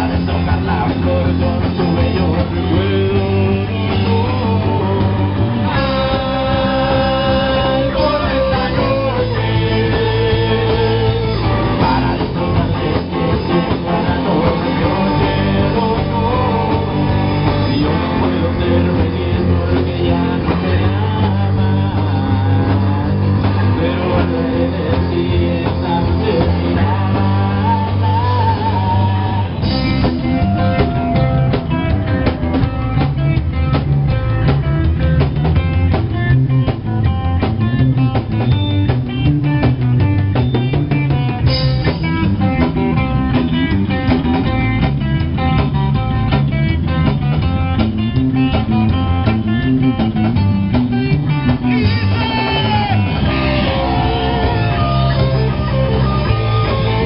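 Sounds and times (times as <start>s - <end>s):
voices singing: 0.0s - 32.8s, 51.6s - 57.0s
bass guitar: 0.0s - 57.0s
drum kit: 0.0s - 57.0s
electric guitar: 0.0s - 57.0s.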